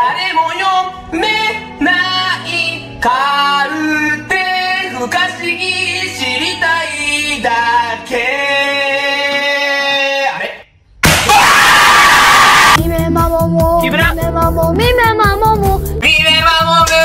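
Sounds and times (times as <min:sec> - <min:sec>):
low musical backing: 0:00.0 - 0:09.4, 0:12.8 - 0:17.0
high voice singing: 0:12.4 - 0:15.8.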